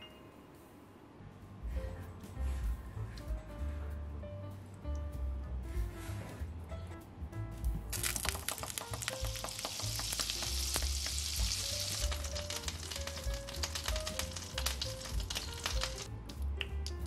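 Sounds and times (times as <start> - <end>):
faint background music: 0.0 - 17.0
butter sizzling in frying pan: 7.9 - 16.1.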